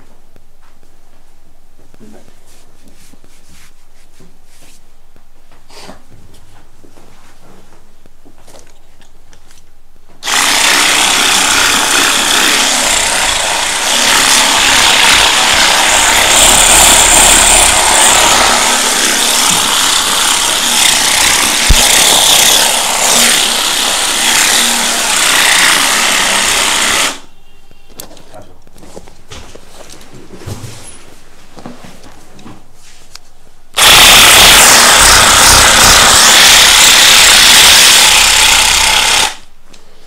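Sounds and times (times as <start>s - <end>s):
massage gun running: 10.2s - 27.2s, 33.8s - 39.4s.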